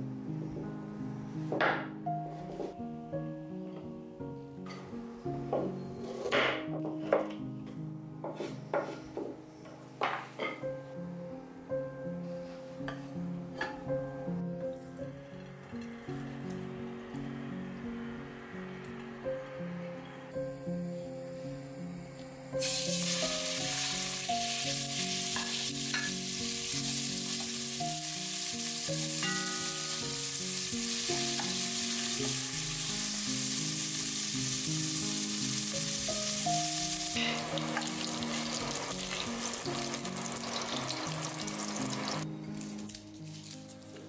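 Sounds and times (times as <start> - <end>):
soft background music: 0.0 - 44.0
chicken sizzling in oil: 22.6 - 42.2.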